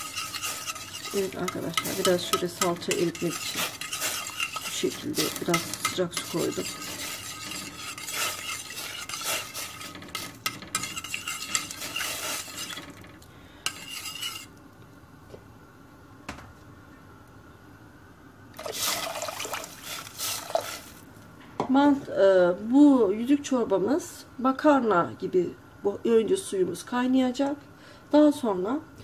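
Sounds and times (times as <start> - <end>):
metal spoon scraping a pot: 0.0 - 14.5
water pouring into a pot: 18.6 - 21.0.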